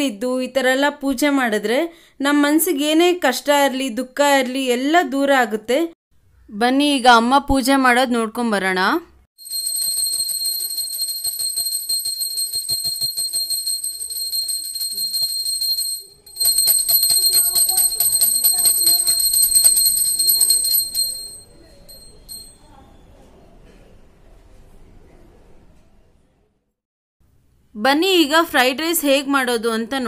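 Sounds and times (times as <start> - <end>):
hand bell rung rapidly: 9.4 - 22.6.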